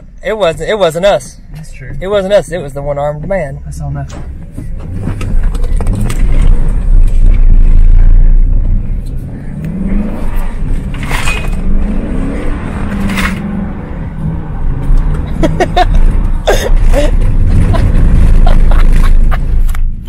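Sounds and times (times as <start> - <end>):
steady low rumble: 2.7 - 20.0
truck engine revving: 4.8 - 20.0.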